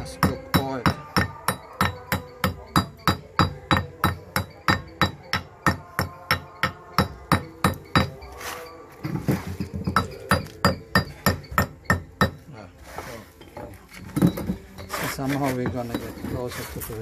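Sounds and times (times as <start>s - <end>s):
hammer striking stone: 0.0s - 8.2s, 9.0s - 12.5s.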